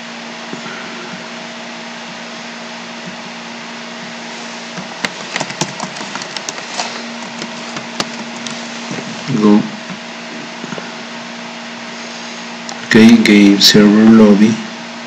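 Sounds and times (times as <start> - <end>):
electrical hiss with low hum: 0.0 - 15.0
keyboard keys clicking: 5.0 - 6.6.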